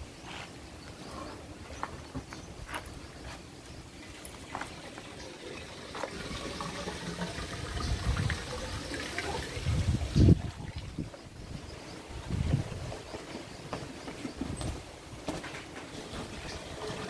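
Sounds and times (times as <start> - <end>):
wet concrete pouring: 4.0 - 10.9, 15.9 - 17.0.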